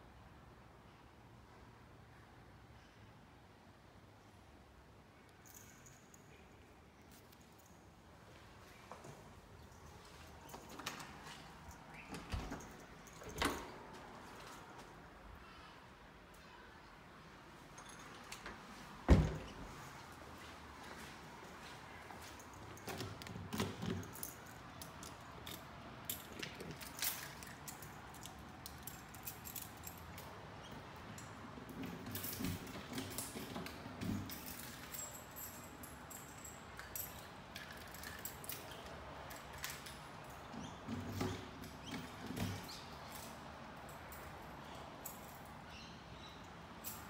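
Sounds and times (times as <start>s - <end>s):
faint footsteps: 17.6s - 23.1s.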